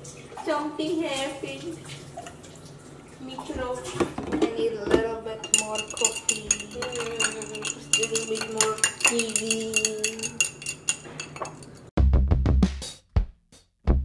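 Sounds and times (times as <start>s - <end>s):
stirrer clinking against glass: 5.4s - 11.9s
music with drum beat: 12.0s - 14.0s.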